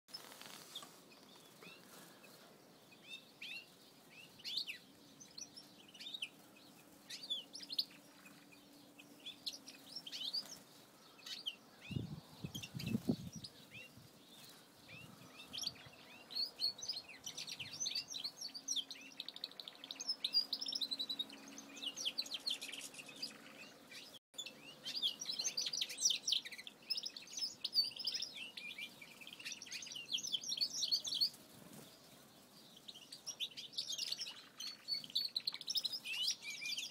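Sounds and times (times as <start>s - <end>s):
finches chirping and twittering: 0.1s - 36.9s.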